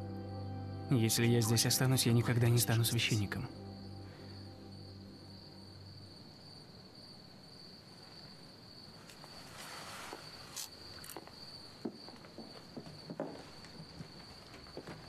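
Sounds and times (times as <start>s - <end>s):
crickets chirping: 0.0s - 15.0s
soft rustle: 7.9s - 15.0s.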